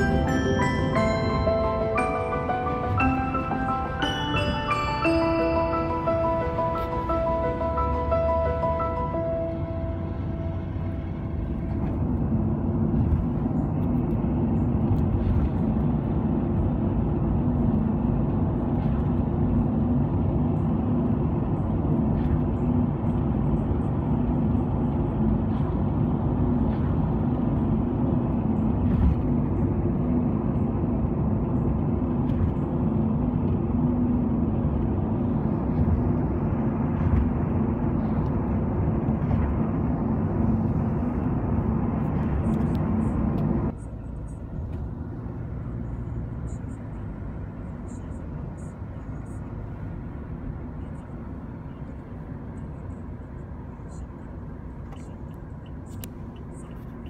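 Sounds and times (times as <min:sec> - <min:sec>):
vehicle interior rumble: 0:00.0 - 0:57.0.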